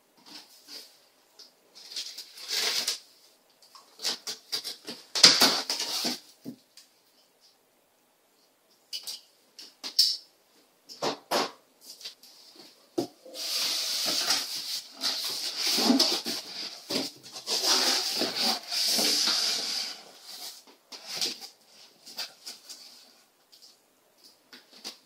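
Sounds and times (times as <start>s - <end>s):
cardboard flaps scraping: 13.4s - 22.8s.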